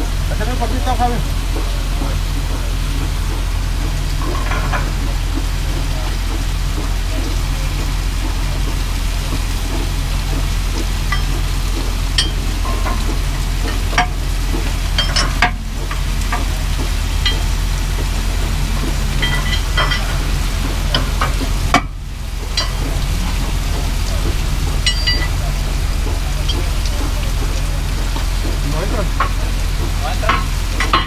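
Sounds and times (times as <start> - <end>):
low machine drone: 0.0 - 31.0.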